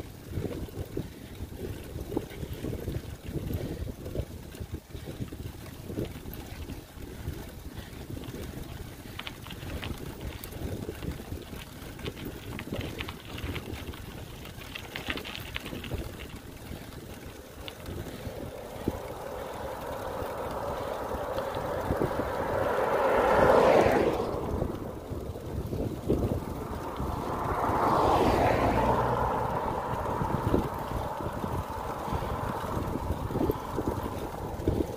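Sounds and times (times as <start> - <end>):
wind buffeting microphone: 0.0 - 34.9
pickup truck passing: 14.6 - 34.9.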